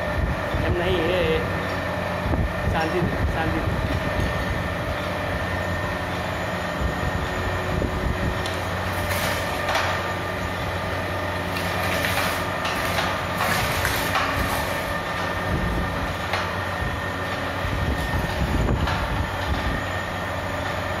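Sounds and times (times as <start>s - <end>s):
shredder motor and chain drive: 3.8s - 21.0s
blades crunching waste: 11.4s - 16.6s.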